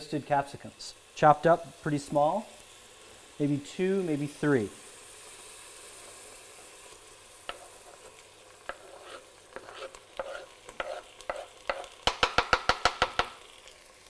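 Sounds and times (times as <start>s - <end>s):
faint sizzling: 0.0s - 14.0s
knife scraping cutting board: 7.5s - 12.0s.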